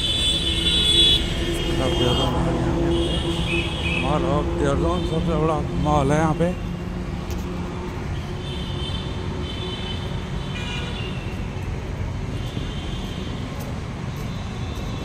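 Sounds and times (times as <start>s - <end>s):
low rumbling outdoor noise: 0.0s - 9.8s.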